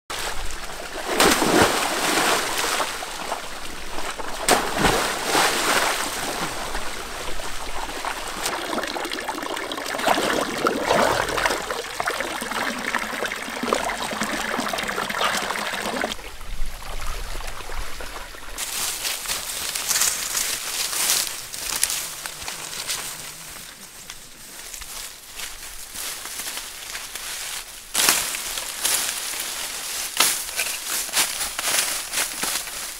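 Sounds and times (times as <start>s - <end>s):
person splashing into pool: 0.9s - 16.2s
water pouring from pipe: 6.2s - 18.7s.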